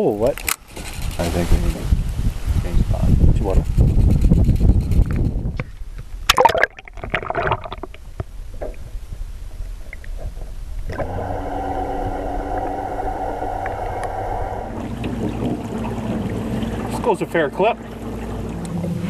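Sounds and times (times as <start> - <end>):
splash into water: 6.3 - 8.0
electric motor propeller whine: 10.9 - 16.9
muffled underwater gurgling: 10.9 - 18.0.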